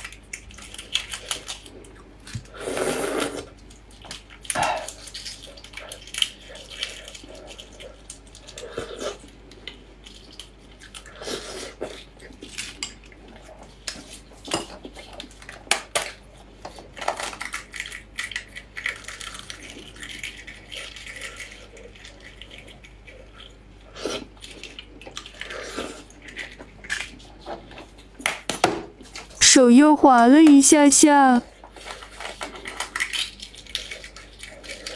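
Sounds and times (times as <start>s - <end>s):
egg shell cracking: 16.9s - 23.6s, 32.0s - 34.9s.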